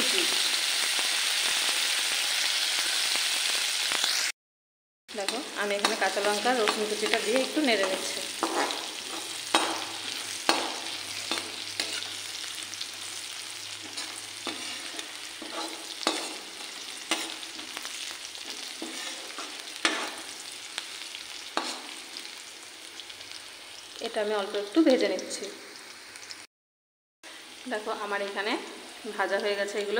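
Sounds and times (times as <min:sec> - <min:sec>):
chillies sizzling in hot oil: 0:00.0 - 0:04.4, 0:05.1 - 0:26.5, 0:27.3 - 0:29.9
metal spoon scraping pan: 0:05.2 - 0:12.3, 0:13.8 - 0:20.3.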